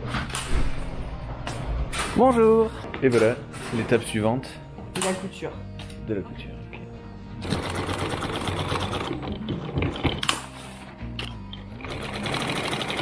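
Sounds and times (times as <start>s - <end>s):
sewing machine needle rattling: 11.8s - 13.0s.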